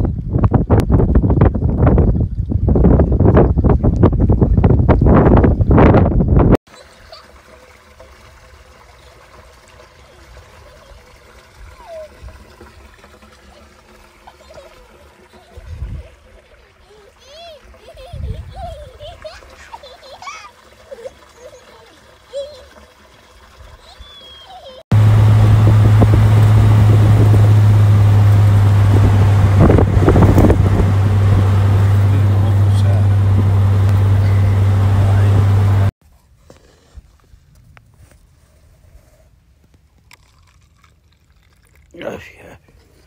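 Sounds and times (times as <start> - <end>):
wind rushing over microphone: 0.0 - 6.6, 24.9 - 35.9
water trickling into plastic tub: 6.7 - 34.2, 39.8 - 43.0
low rumble: 24.9 - 35.9
vehicle low drone: 24.9 - 35.9.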